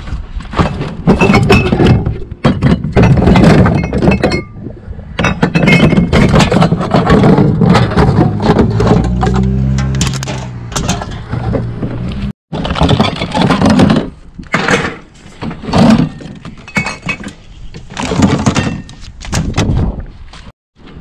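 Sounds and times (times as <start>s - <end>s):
cans and bottles clinking: 0.6s - 4.5s, 5.2s - 11.2s, 15.7s - 17.4s.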